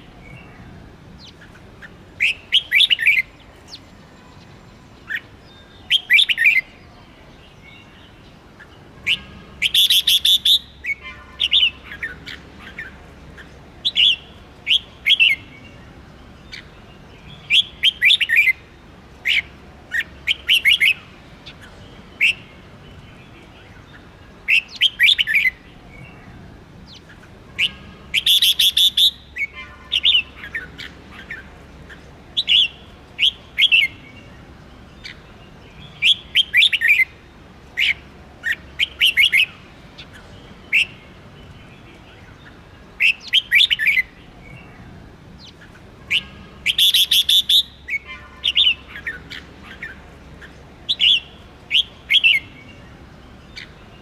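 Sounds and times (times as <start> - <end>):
quiet bird chatter: 0.0 - 54.0
bird whistled phrases: 5.0 - 6.7, 9.0 - 12.4, 27.6 - 31.4, 43.0 - 44.1, 46.1 - 50.0, 50.9 - 52.6.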